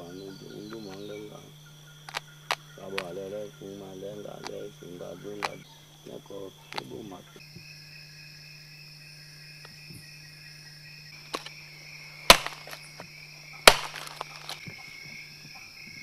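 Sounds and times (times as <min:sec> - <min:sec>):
night insects chorus: 0:00.0 - 0:16.0
loud sharp cracks: 0:11.3 - 0:11.6, 0:12.2 - 0:13.0, 0:13.6 - 0:14.6.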